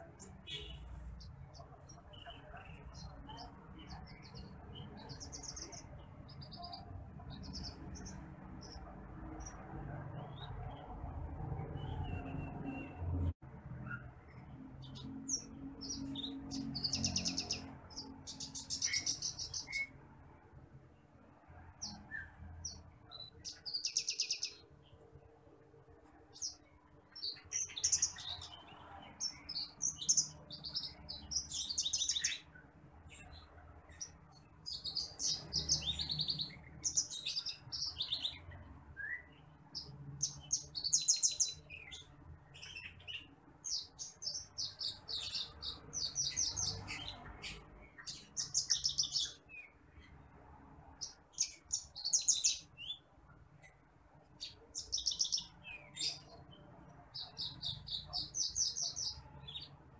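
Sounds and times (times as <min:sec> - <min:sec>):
lark trilling and chirping: 0:00.0 - 0:09.6, 0:13.9 - 0:20.0, 0:26.3 - 0:50.2, 0:51.0 - 0:53.8, 0:54.4 - 0:59.8.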